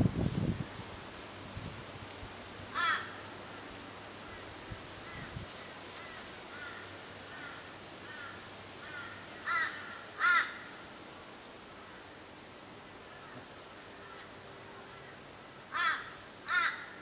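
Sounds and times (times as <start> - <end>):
crow cawing: 2.7 - 3.6, 5.9 - 10.8, 13.1 - 14.3, 15.7 - 17.0.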